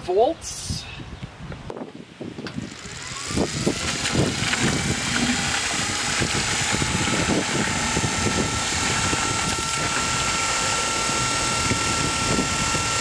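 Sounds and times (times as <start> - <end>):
electric motor pump whining: 2.4 - 13.0
water splashing into plastic bucket: 3.7 - 7.9.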